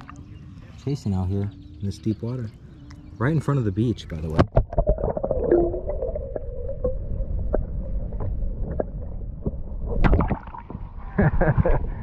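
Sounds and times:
underwater low rumble: 0:03.9 - 0:12.0
water gurgling: 0:04.2 - 0:11.1.

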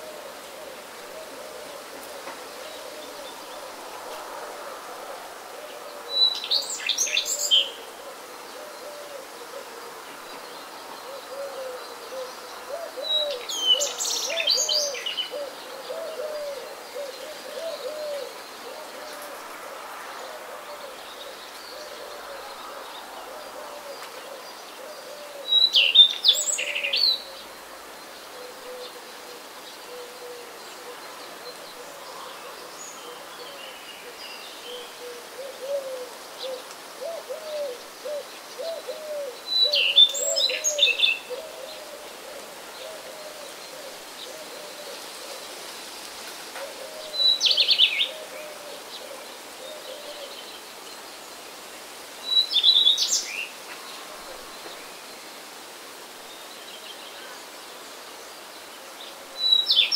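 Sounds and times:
songbird singing: 0:00.0 - 0:59.9
low hooting bird call: 0:11.0 - 0:19.3, 0:28.3 - 0:45.6.

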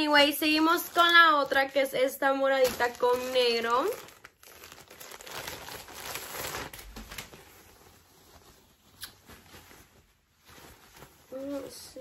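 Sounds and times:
shirt rustling and crinkling: 0:00.0 - 0:12.0.

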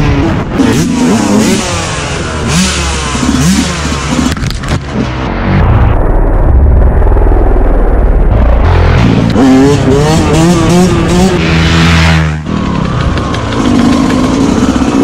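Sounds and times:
two-stroke dirt bike engine revving: 0:00.0 - 0:05.2, 0:08.7 - 0:15.0.

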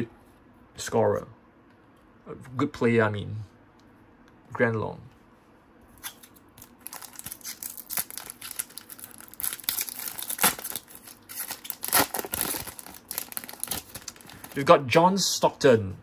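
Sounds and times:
card packaging crinkling and tearing: 0:06.0 - 0:14.7.

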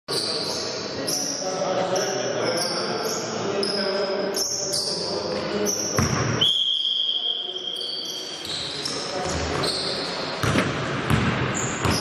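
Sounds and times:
shoe squeaks: 0:00.1 - 0:10.5, 0:11.5 - 0:12.0
voices echoing: 0:00.1 - 0:12.0
ball bouncing: 0:06.0 - 0:06.3, 0:10.4 - 0:12.0.

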